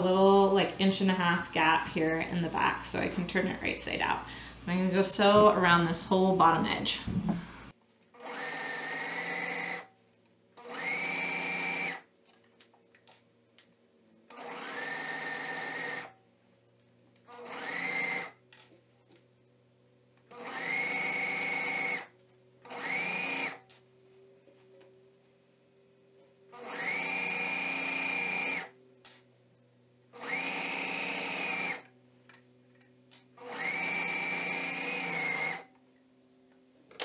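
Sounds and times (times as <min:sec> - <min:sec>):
overlock sewing machine whining: 0:08.1 - 0:09.9, 0:10.6 - 0:12.1, 0:14.3 - 0:16.2, 0:17.2 - 0:18.4, 0:20.2 - 0:23.7, 0:26.5 - 0:28.8, 0:30.1 - 0:31.9, 0:33.3 - 0:35.7.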